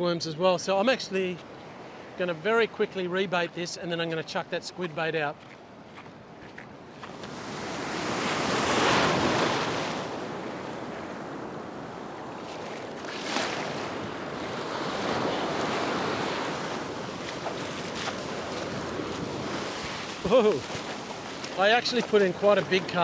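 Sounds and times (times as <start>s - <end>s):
wind buffeting microphone: 5.4s - 23.0s
ocean surf breaking: 7.0s - 23.0s.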